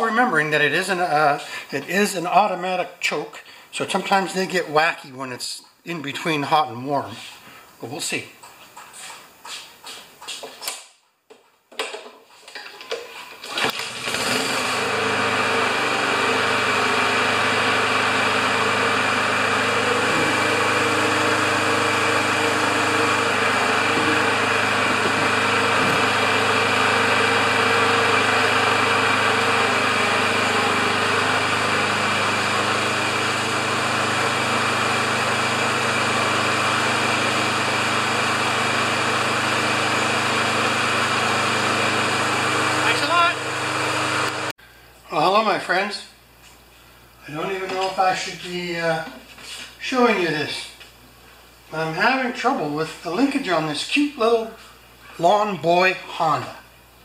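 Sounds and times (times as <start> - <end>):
lawn mower engine running: 13.5 - 44.5.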